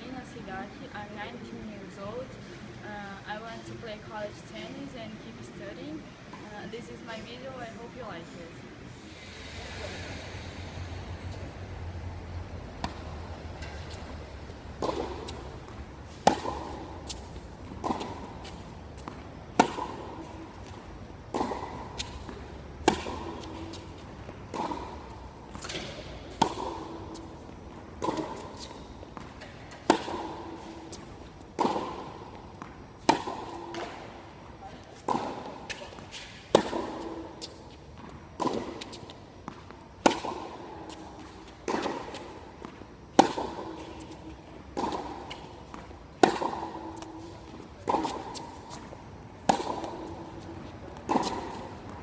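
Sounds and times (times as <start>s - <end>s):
tennis rackets striking ball: 12.8s - 52.0s.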